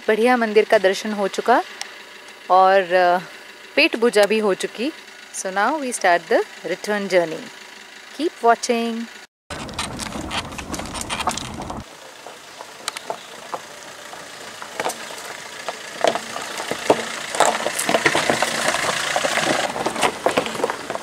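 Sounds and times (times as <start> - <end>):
car engine running low: 0.0 - 8.2, 9.1 - 21.0
low rumble: 9.5 - 11.8
tyres crunching on stones: 9.5 - 21.0.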